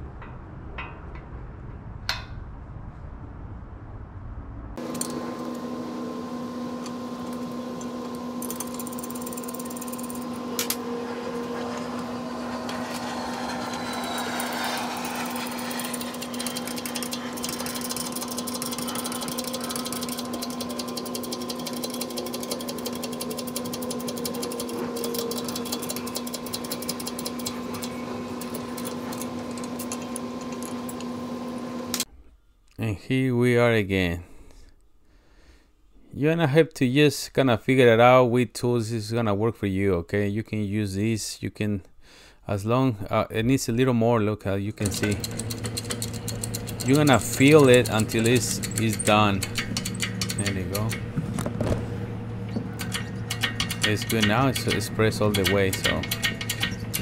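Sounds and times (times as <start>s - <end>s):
steady machine hum: 4.6s - 32.1s, 44.7s - 57.0s
fine ticking: 44.8s - 51.1s, 52.8s - 57.0s
sharp metal clicks: 44.8s - 51.1s, 52.8s - 57.0s.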